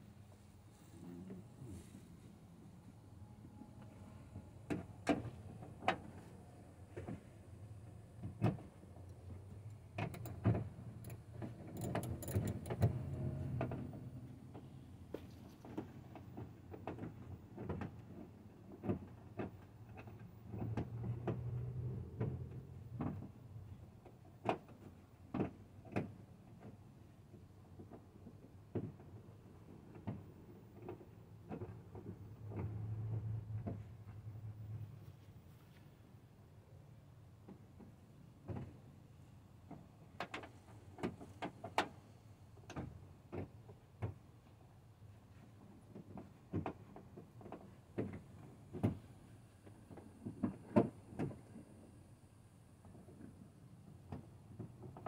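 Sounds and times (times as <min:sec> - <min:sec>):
low steady hum: 0:00.0 - 0:24.2
clicks and knocks of parts: 0:08.2 - 0:21.6.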